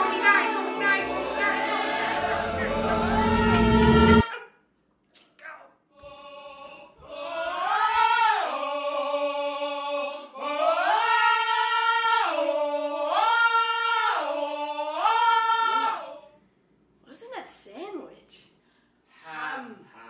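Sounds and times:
voices singing long notes: 0.0s - 4.2s.

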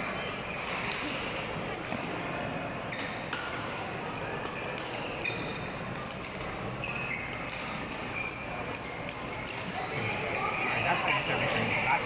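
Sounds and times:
shoes squeaking on court floor: 2.8s - 12.0s
rackets striking shuttlecock: 3.0s - 3.8s, 4.4s - 10.4s.

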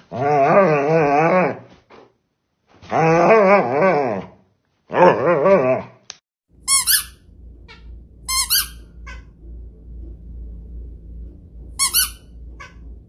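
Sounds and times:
loud squeaky toy squeak: 6.7s - 9.3s, 11.8s - 12.8s
faint distant squeaky toy: 6.7s - 9.4s, 11.8s - 13.0s.

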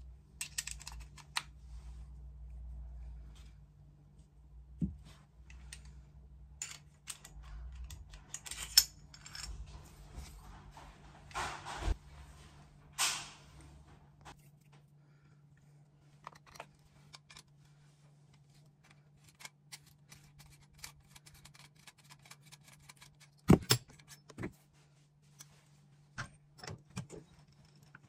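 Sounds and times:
metal gun parts clicking: 0.4s - 1.5s, 6.6s - 9.5s, 16.2s - 17.5s.

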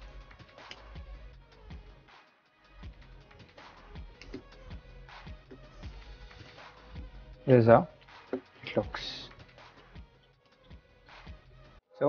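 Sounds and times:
quiet music with steady beat: 0.0s - 11.8s.

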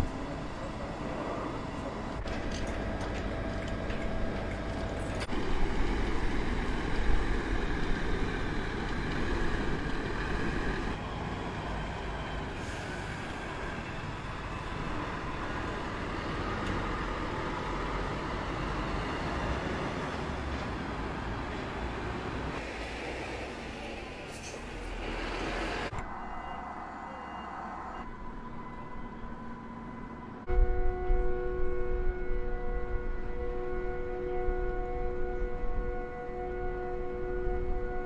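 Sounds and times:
lorry diesel engine running: 0.0s - 28.0s.

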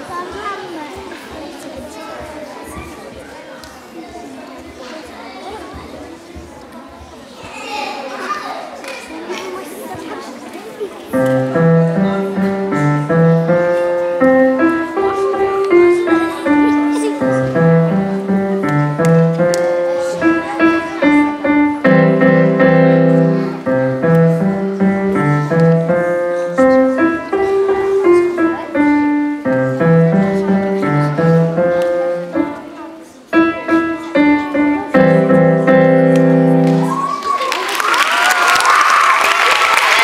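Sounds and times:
piano music: 11.2s - 37.2s.

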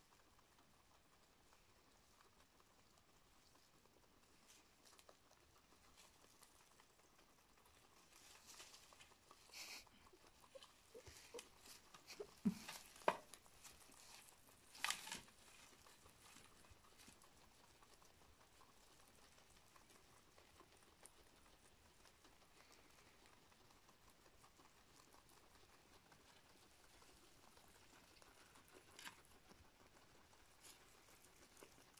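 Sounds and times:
animals chewing grass: 0.0s - 31.9s
clicks and crackles: 4.5s - 18.9s.

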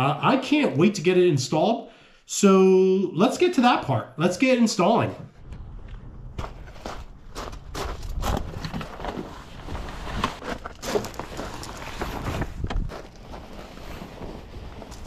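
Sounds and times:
wind buffeting microphone: 5.4s - 10.2s
footsteps crunching on gravel: 5.8s - 13.6s
fabric cover rustling: 6.7s - 15.0s.

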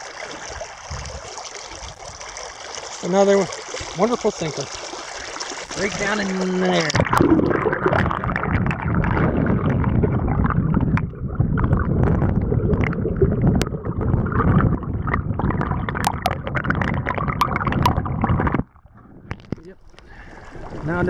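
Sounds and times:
wind buffeting microphone: 0.8s - 2.2s, 7.0s - 19.3s.

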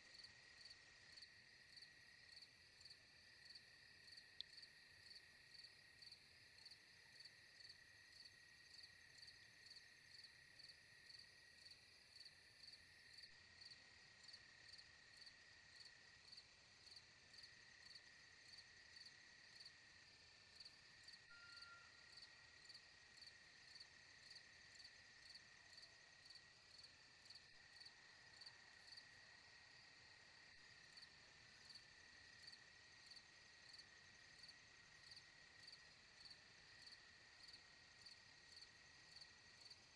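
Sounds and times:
insect chirping: 0.1s - 39.9s
high insect trill: 20.6s - 24.5s.

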